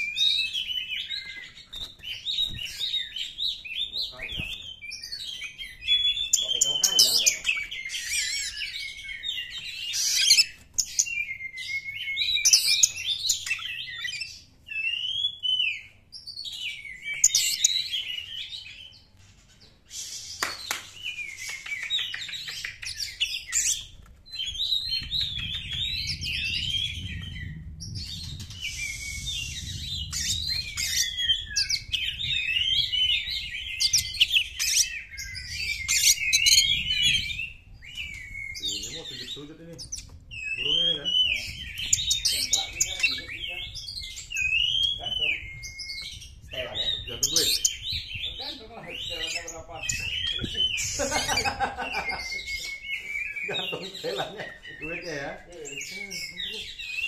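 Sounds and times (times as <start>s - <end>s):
bird singing: 0.0s - 57.0s
low rumble: 25.0s - 33.6s.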